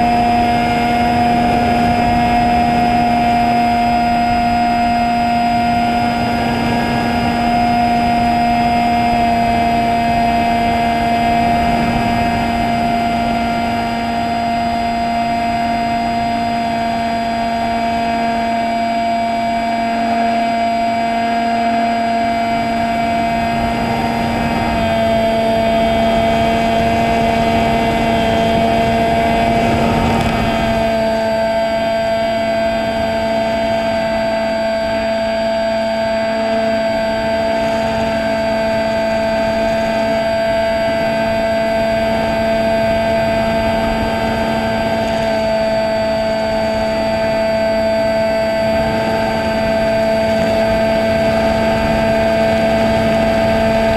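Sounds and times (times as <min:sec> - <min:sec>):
drone motor whine: 0:00.0 - 0:53.9
wind rush: 0:22.1 - 0:35.0.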